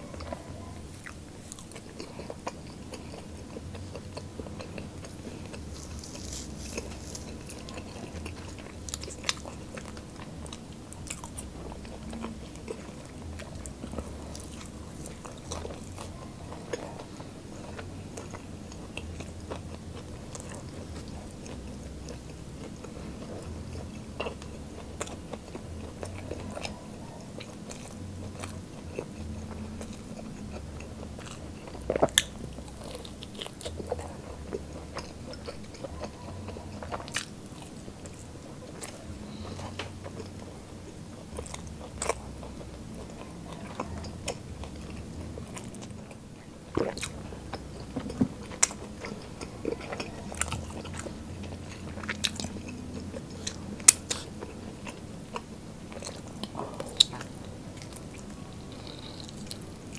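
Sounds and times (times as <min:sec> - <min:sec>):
chewing and crunching chicken wings: 0:00.0 - 0:59.9.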